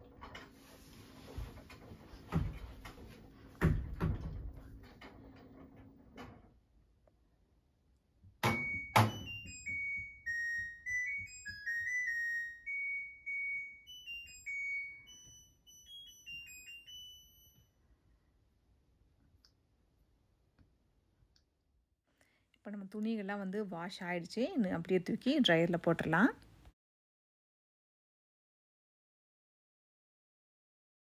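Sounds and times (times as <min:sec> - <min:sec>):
clothes thumping in washer drum: 0:01.0 - 0:05.0
washer electronic beep melody: 0:08.4 - 0:17.8.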